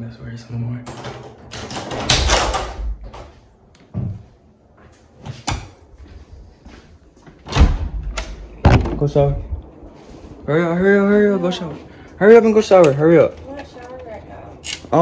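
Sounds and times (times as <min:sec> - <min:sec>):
door knocks and thumps: 0:07.5 - 0:09.4.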